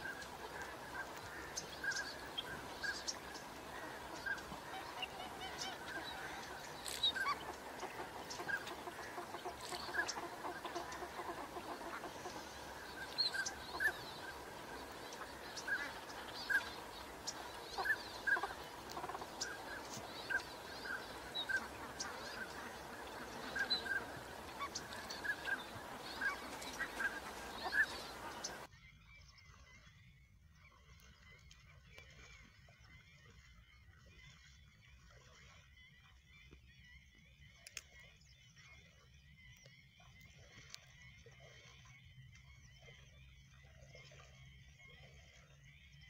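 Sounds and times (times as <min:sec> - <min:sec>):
waterfowl honking: 0:00.0 - 0:28.7.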